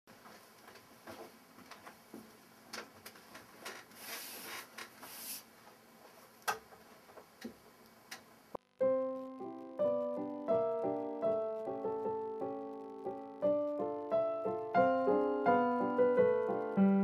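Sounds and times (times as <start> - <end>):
rustling: 3.0 - 7.1
digital piano melody: 8.8 - 17.0.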